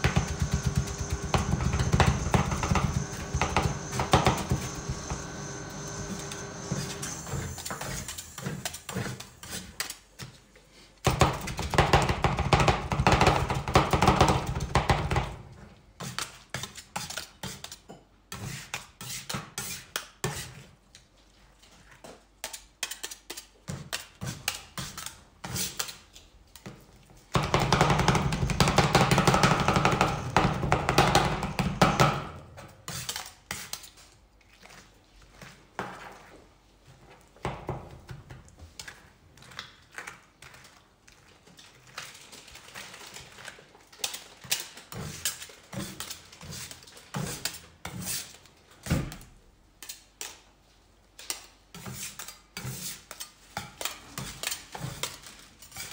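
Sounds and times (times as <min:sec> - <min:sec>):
loud dense noise: 0:00.0 - 0:08.2
metal spatulas clicking and scraping: 0:22.4 - 0:23.5.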